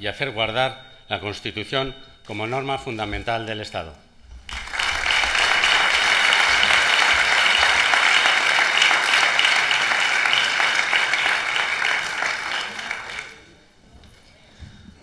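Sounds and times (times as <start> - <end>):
audience applauding: 4.5 - 13.5.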